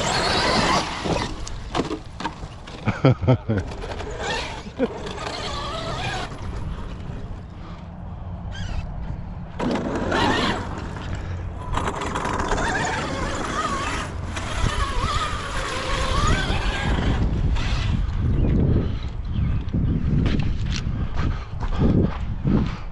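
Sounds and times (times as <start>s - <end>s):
motor whining: 0.0s - 1.8s, 3.7s - 18.6s.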